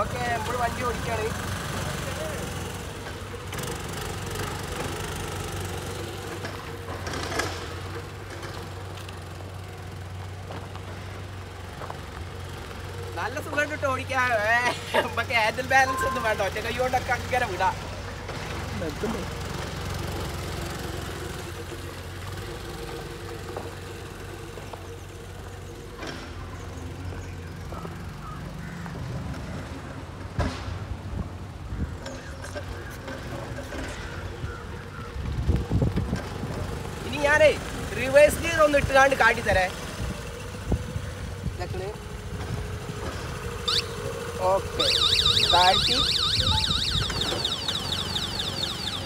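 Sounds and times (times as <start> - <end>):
scooter engine running: 0.0 - 28.8, 31.6 - 49.0.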